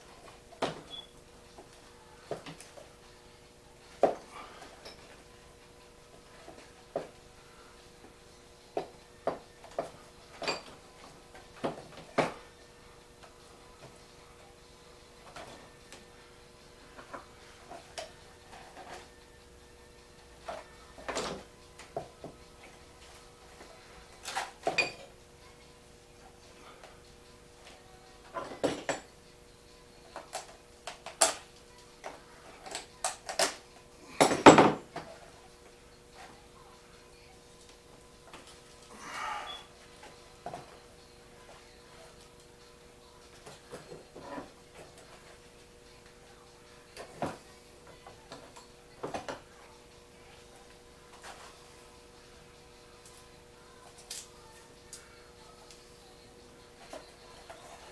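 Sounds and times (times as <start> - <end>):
hard tools knocking and clunking: 34.2 - 35.1.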